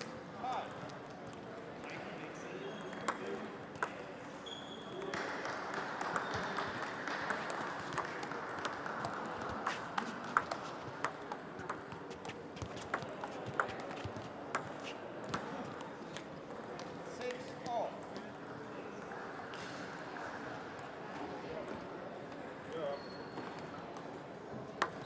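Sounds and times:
murmur of voices in hall: 0:00.0 - 0:25.0
table tennis ball clicking: 0:02.8 - 0:04.0, 0:05.1 - 0:16.9, 0:24.8 - 0:25.0.

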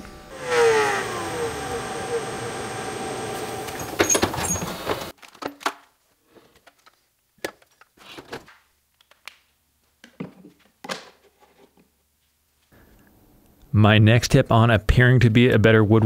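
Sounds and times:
router spinning: 0:00.0 - 0:05.1
metal drawers opening and shutting: 0:03.6 - 0:05.1.

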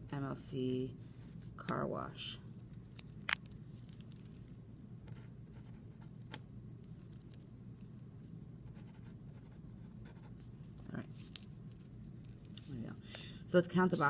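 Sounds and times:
faint room hum: 0:00.0 - 0:14.0
pen scratching on paper: 0:08.7 - 0:10.5.

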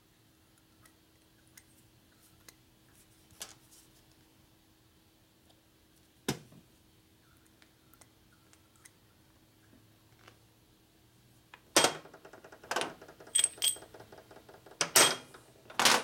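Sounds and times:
metal parts clinking on steel bench: 0:12.8 - 0:13.9, 0:14.8 - 0:16.0.

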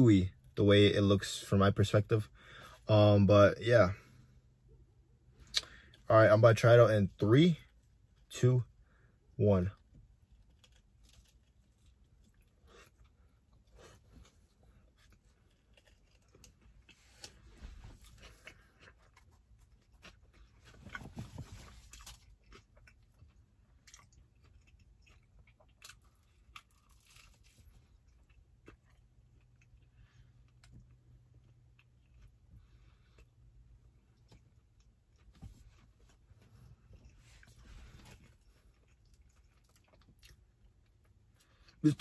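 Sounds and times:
person chewing pizza: 0:09.8 - 0:42.0.

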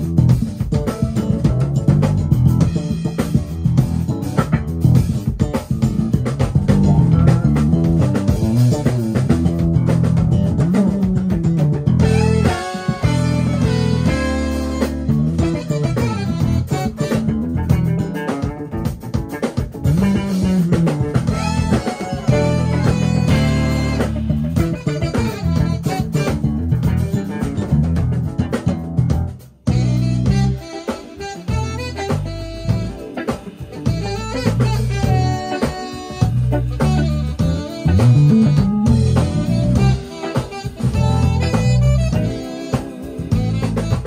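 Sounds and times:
drums: 0:00.0 - 0:44.0
electric bass line sliding: 0:00.0 - 0:44.0
electric guitar: 0:00.0 - 0:44.0
horns: 0:12.0 - 0:18.6, 0:19.3 - 0:27.9, 0:29.6 - 0:44.0.

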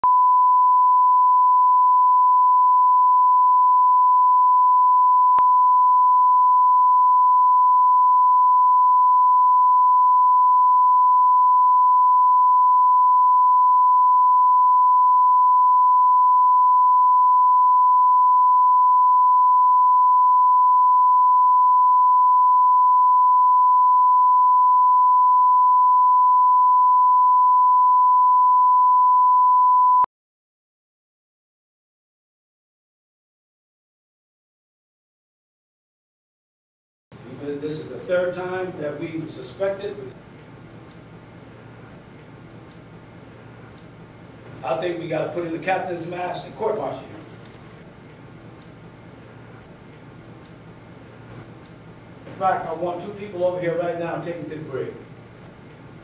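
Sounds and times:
sine test tone: 0:00.0 - 0:30.1.

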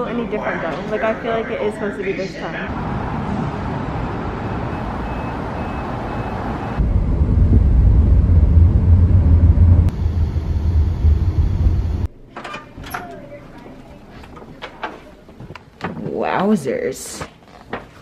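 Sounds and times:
outdoor traffic noise: 0:00.0 - 0:12.2.

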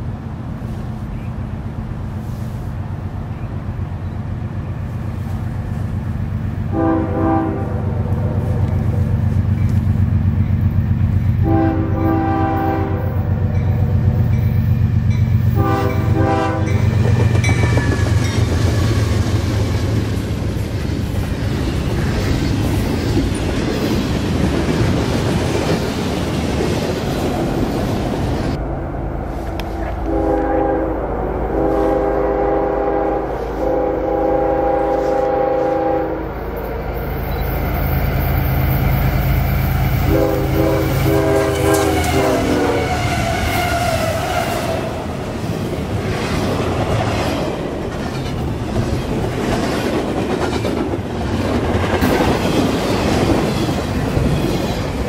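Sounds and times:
locomotive engine rumble: 0:00.0 - 0:55.0
train cars passing: 0:00.0 - 0:55.0
locomotive air horn blasts: 0:06.7 - 0:08.6, 0:11.4 - 0:13.6, 0:15.5 - 0:16.9, 0:29.8 - 0:36.3, 0:40.0 - 0:45.0.

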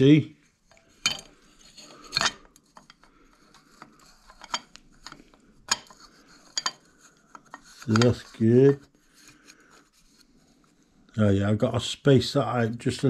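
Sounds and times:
soft metal rubbing: 0:00.4 - 0:11.0.

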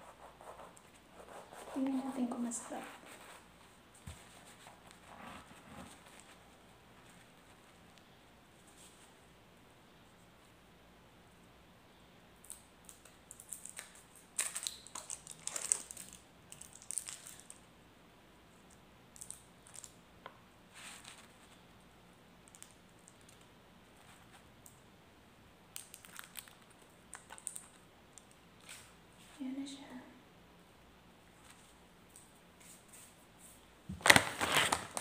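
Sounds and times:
plastic wrapper crinkling: 0:12.5 - 0:17.6, 0:25.7 - 0:28.9, 0:33.9 - 0:35.0.

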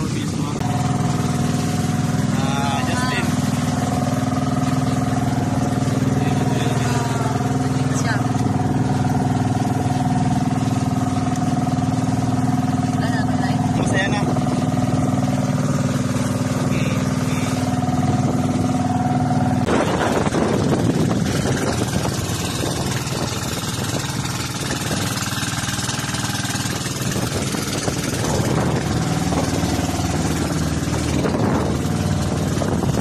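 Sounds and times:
boat engine running: 0:00.0 - 0:33.0.

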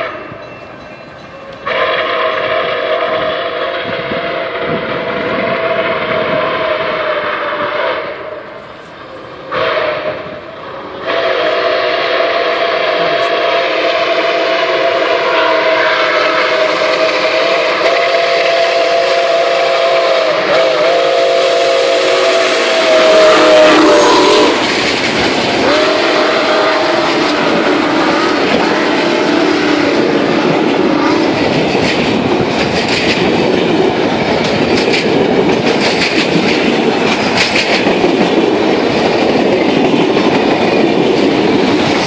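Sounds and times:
steam locomotive whistle: 0:01.4 - 0:31.4.

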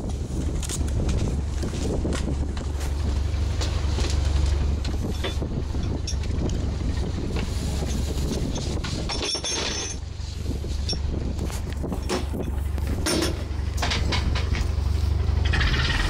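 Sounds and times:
boat engine humming: 0:00.0 - 0:16.0
wind on microphone: 0:00.0 - 0:16.0
knocks from metal rigging: 0:11.8 - 0:14.8.

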